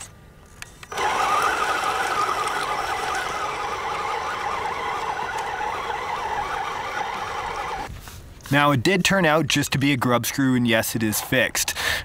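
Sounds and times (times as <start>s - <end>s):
rc truck motors whining: 0.8s - 7.9s.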